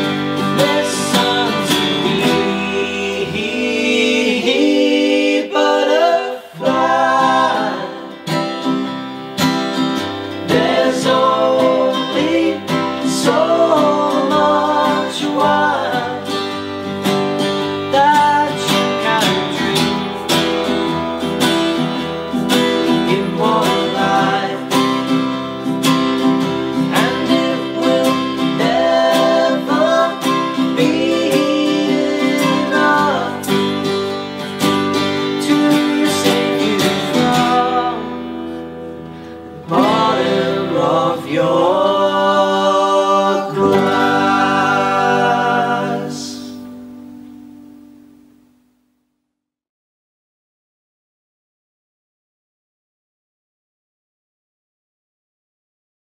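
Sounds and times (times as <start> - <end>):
man singing: 0.0 - 8.2, 10.4 - 16.6, 17.8 - 20.8, 22.8 - 25.2, 26.7 - 34.0, 34.9 - 38.6, 39.6 - 46.7
acoustic guitar strumming: 0.0 - 48.8.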